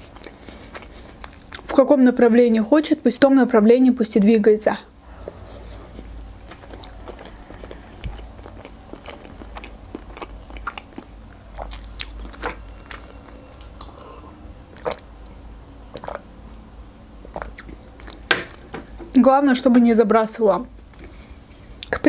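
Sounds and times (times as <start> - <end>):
close chewing with mouth clicks: 0.0 - 1.8, 4.9 - 16.3, 17.2 - 18.7, 20.8 - 22.0.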